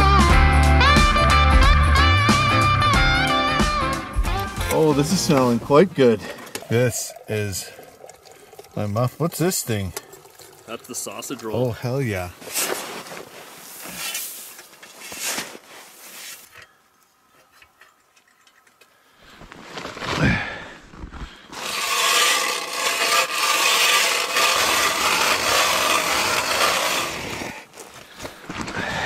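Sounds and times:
ice auger grinding: 3.4s - 7.8s, 21.5s - 28.1s
ice auger scraping: 4.2s - 7.1s, 11.1s - 16.7s, 21.5s - 28.2s.

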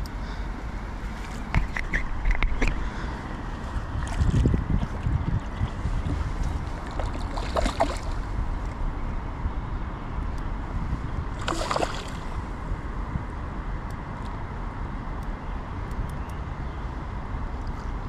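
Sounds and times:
wind buffeting microphone: 1.0s - 14.6s
river water rushing: 11.4s - 12.5s.

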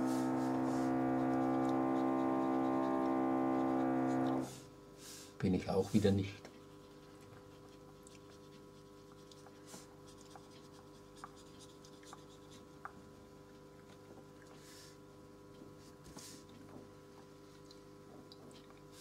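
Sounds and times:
brush swishing in paint: 0.0s - 1.7s
paintbrush scratching on paper: 0.0s - 4.6s, 5.8s - 12.7s
steady low hum: 0.0s - 19.0s.

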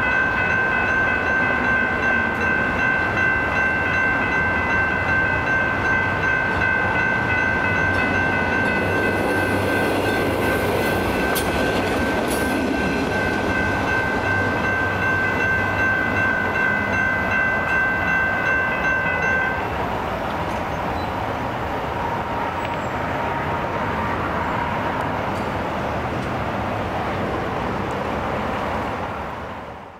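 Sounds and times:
electronic crossing bell ringing: 0.0s - 19.7s.

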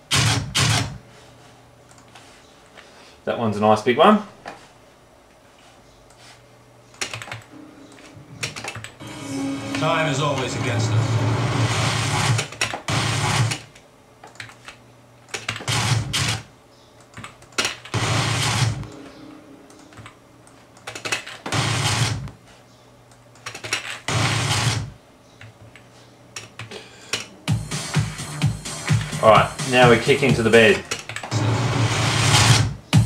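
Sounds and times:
computer keyboard clicks: 7.0s - 7.5s, 14.2s - 15.7s, 17.0s - 17.9s, 20.8s - 21.4s.

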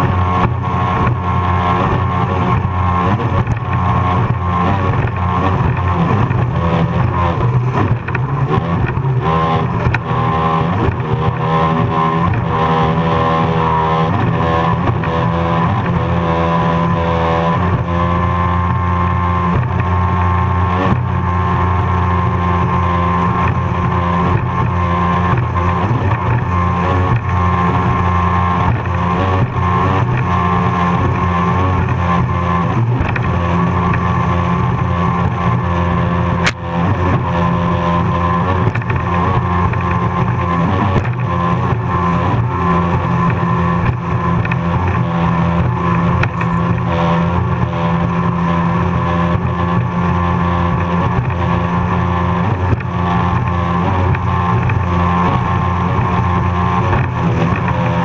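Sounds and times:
powerboat engine at high revs: 0.0s - 58.0s.

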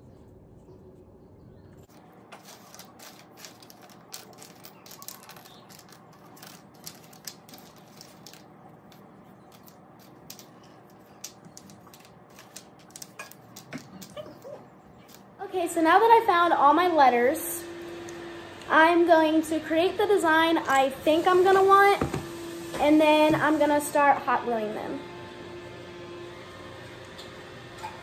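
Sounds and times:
wooden tiles clicking: 2.3s - 14.4s.

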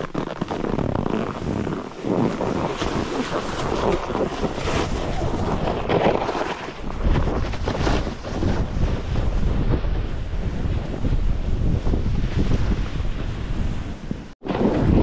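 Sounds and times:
skis scraping on snow: 0.0s - 9.8s
wind buffeting microphone: 0.0s - 15.0s.

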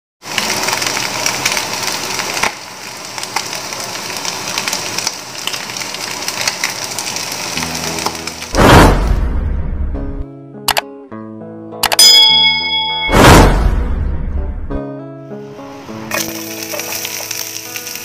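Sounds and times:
food sizzling in oil: 0.2s - 8.6s, 15.4s - 18.0s.

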